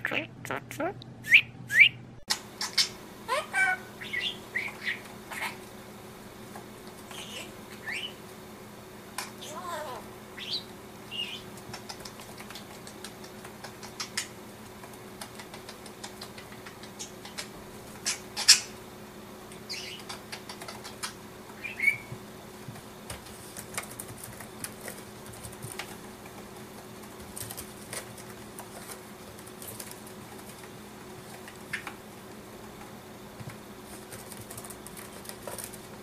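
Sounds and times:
budgerigar chirping: 1.3s - 2.0s, 2.6s - 5.6s, 7.1s - 8.2s, 10.4s - 11.5s, 19.7s - 20.1s, 21.6s - 22.1s.

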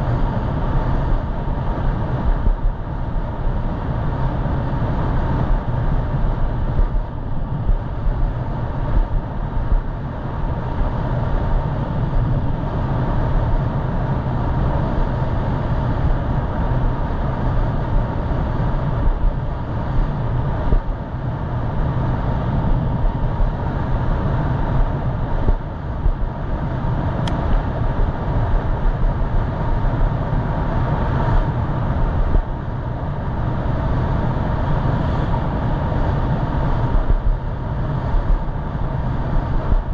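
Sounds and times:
wind buffeting microphone: 16.0s - 39.9s.

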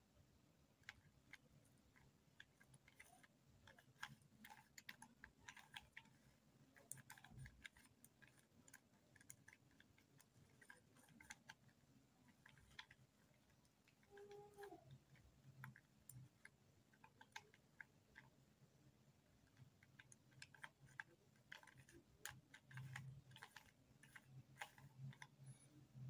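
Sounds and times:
plastic puzzle cube clicking: 0.8s - 18.4s, 19.4s - 25.5s.

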